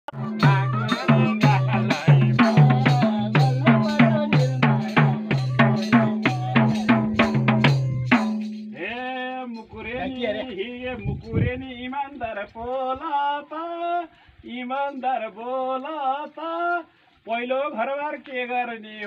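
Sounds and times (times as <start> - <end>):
man singing drawn-out note: 0.1 - 8.2
hand drum folk rhythm: 0.1 - 8.9.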